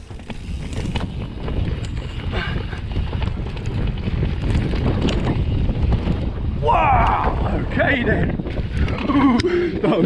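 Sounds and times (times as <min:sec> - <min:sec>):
bike knocks and rattles: 0:00.0 - 0:10.0
wind rumbling on microphone: 0:00.0 - 0:10.0.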